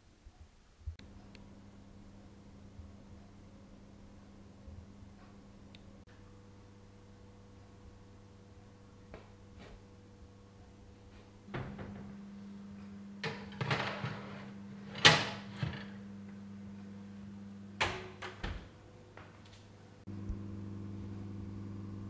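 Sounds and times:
low oven hum: 0.3 - 22.0
oven door opening: 11.5 - 12.2, 13.2 - 16.1, 17.8 - 19.4
oven door thud shut: 11.5 - 12.2, 17.8 - 18.7.

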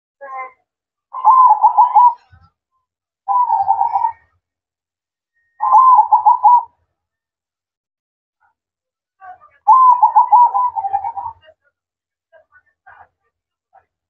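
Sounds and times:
dove cooing: 1.2 - 2.2, 3.3 - 4.2, 5.6 - 6.7, 9.7 - 11.4.

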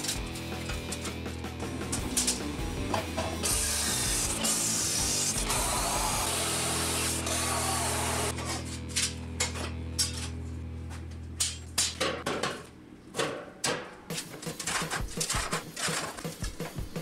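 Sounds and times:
metal pieces clanking: 0.0 - 3.5, 8.4 - 10.4, 11.4 - 12.7
machine humming: 1.8 - 8.5.

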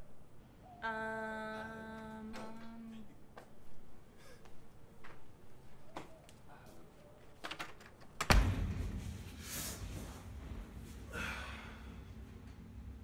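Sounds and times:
footsteps in a room: 2.4 - 7.4, 8.2 - 11.3
heavy low thump: 8.3 - 9.4.

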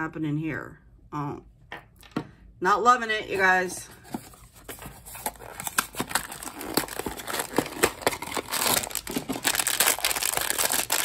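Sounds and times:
cardboard clicks and rustles: 4.0 - 11.0
foil wrapper crinkling: 4.8 - 11.0.

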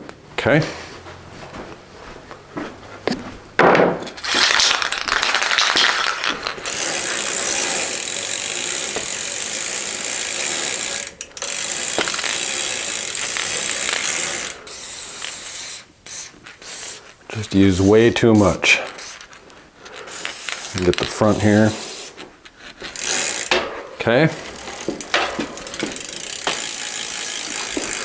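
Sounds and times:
bicycle freewheel ratcheting: 4.0 - 17.8, 18.4 - 28.0
aerosol spray hissing: 15.1 - 17.1.

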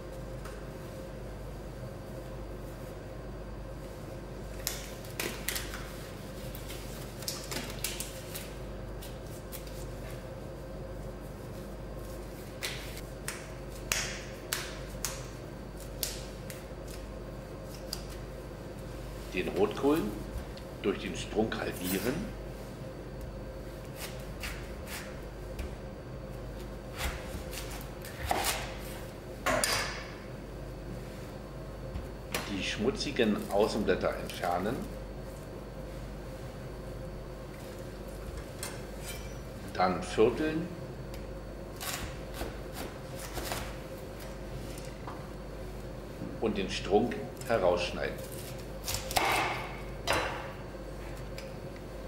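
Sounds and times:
steady low hum: 0.0 - 52.0
plastic gloves snapping and crinkling: 4.5 - 9.9, 12.5 - 18.2.

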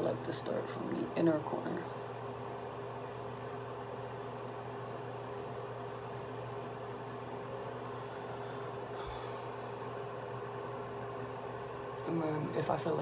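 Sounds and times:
background hum and hiss: 0.0 - 13.0.

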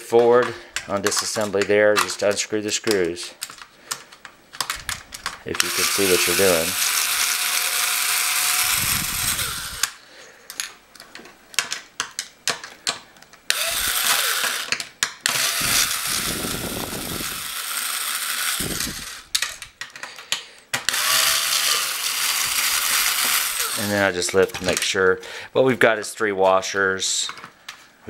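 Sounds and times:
cordless screwdriver running: 5.6 - 10.0, 13.5 - 19.4, 20.9 - 24.0.

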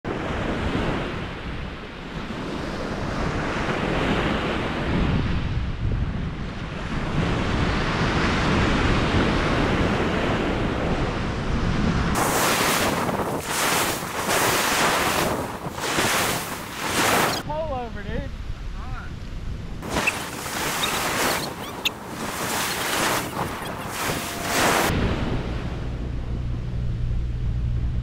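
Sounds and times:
wind buffeting microphone: 2.0 - 17.4, 19.2 - 26.8
ocean surf breaking: 12.2 - 17.4, 19.8 - 25.8.

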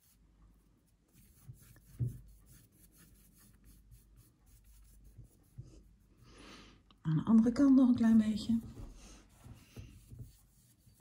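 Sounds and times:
brush scratching on canvas: 0.0 - 0.2, 0.8 - 6.2, 8.0 - 11.0.

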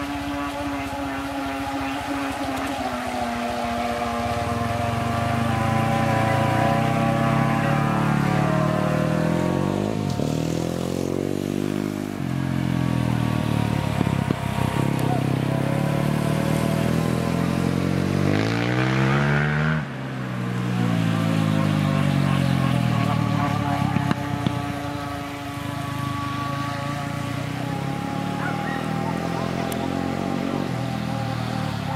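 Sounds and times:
electric motors whining: 0.0 - 9.5.

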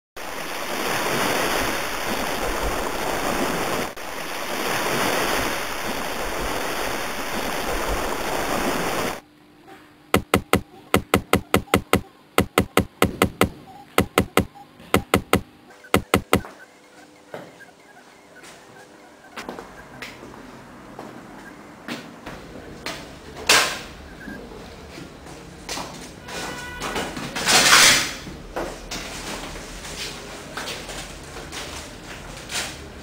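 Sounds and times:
loud steady rushing noise: 10.2 - 15.4, 16.0 - 16.4
sharp clicks: 10.2 - 15.4, 16.0 - 16.5.

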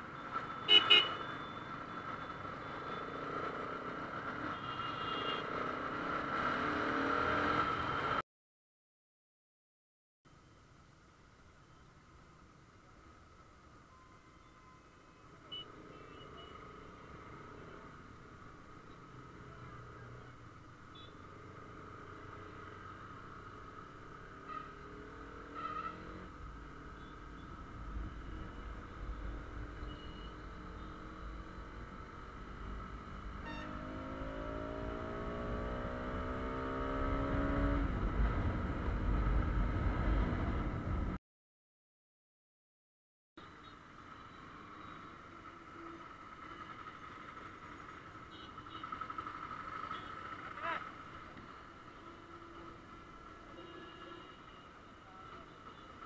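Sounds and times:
motorcycle engine accelerating: 32.5 - 40.6.

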